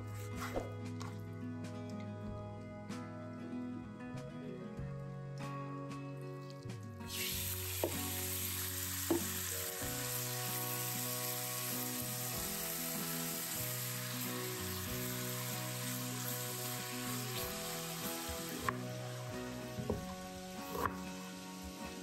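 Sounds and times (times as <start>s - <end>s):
chicken sizzling in oil: 7.1s - 22.0s.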